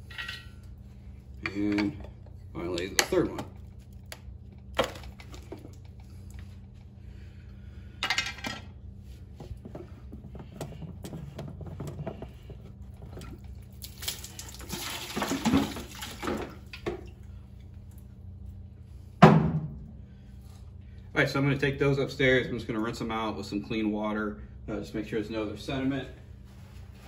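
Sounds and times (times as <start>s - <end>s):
water sloshing: 12.2s - 17.2s
loud knock: 19.2s - 19.8s.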